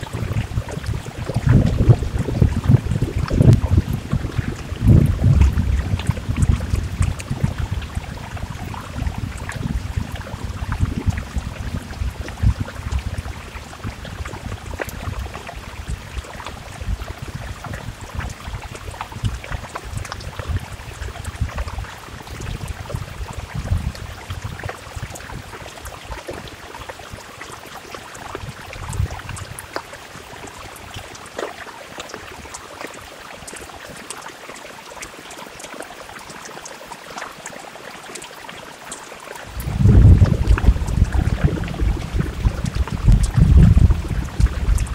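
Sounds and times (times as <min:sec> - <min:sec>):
deep uneven rumble: 0:00.0 - 0:27.2, 0:39.5 - 0:44.9
heavy rain falling: 0:00.0 - 0:31.3, 0:35.2 - 0:44.9.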